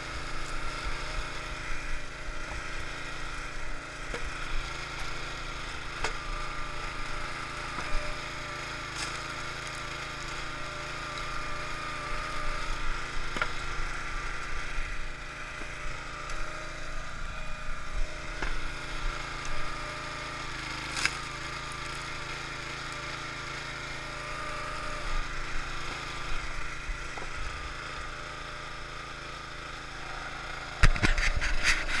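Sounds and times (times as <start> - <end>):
small gas engine running: 0.0 - 32.0
wood splitting cracks: 20.8 - 21.3
knocking and rubbing on microphone: 30.8 - 32.0.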